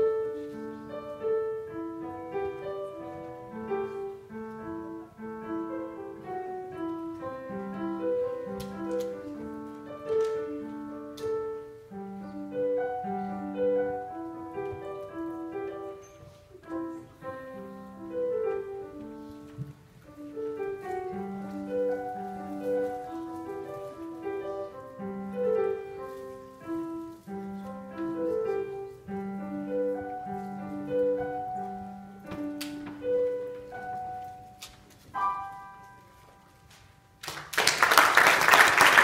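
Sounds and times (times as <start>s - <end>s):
solo piano piece: 0.0s - 37.2s
audience applause: 37.2s - 39.0s.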